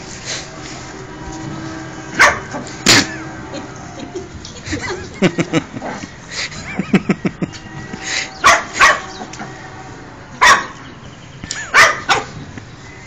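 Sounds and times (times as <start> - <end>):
puppy barking: 2.2 - 2.5, 8.4 - 9.2, 10.4 - 10.8, 11.7 - 12.4.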